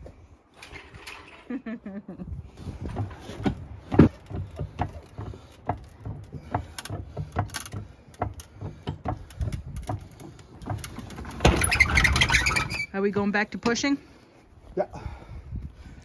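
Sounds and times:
metal clicks and knocks: 0:02.8 - 0:12.4.

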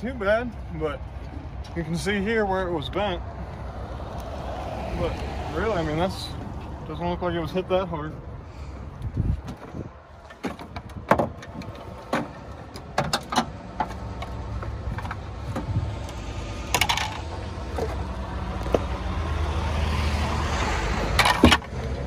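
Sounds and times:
plastic parts knocking and clattering: 0:10.3 - 0:14.3, 0:16.7 - 0:18.0.

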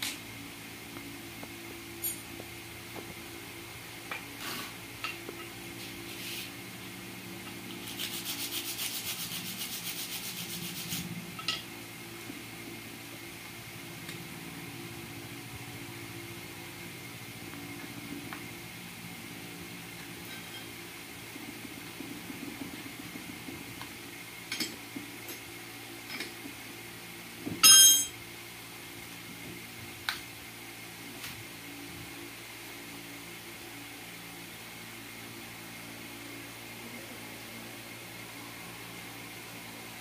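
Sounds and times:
steady low hum: 0:00.0 - 0:40.0
rapid rubbing strokes by hand: 0:05.7 - 0:06.7, 0:07.7 - 0:11.2
loud ringing metallic clang: 0:27.6 - 0:28.2.

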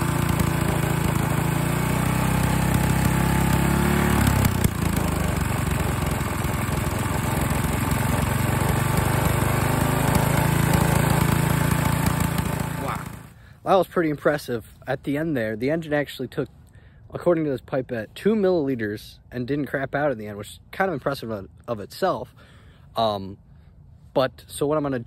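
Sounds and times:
engine knock: 0:00.0 - 0:13.3
snowblower engine running: 0:00.0 - 0:13.5.

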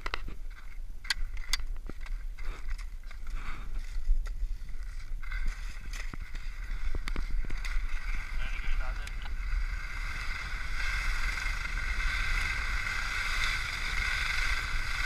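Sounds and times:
ski poles clicking and knocking: 0:00.0 - 0:09.4
skis hissing on packed snow: 0:05.4 - 0:15.0.

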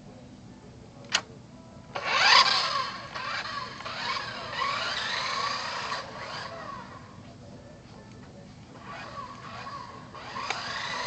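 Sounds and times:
toy car electric motor whining: 0:02.0 - 0:07.1, 0:08.8 - 0:11.0.

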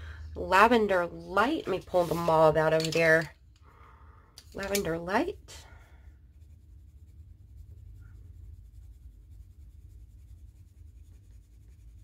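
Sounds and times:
low hum: 0:00.0 - 0:12.0
pencil scratching on paper: 0:04.6 - 0:12.0.

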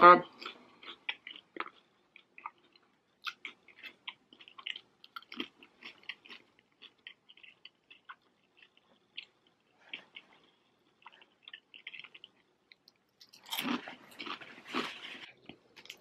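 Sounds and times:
crunchy chewing: 0:00.2 - 0:16.0.

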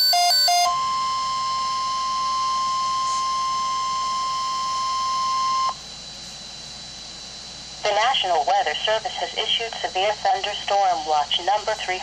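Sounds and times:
alarm beeps alternating pitch: 0:00.0 - 0:05.8
steady warning alarm tone: 0:00.0 - 0:12.0
radio hiss: 0:07.8 - 0:12.0.

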